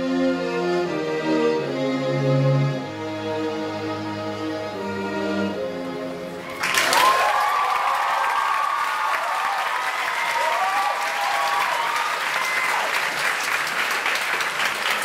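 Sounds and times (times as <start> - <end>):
audience applauding: 6.4 - 15.0
high whoops and cheering: 6.5 - 13.2.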